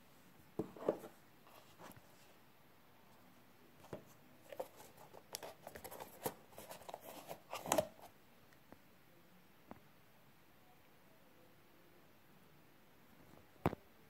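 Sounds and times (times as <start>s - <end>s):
card and plastic clicks and scrapes: 4.5s - 8.1s.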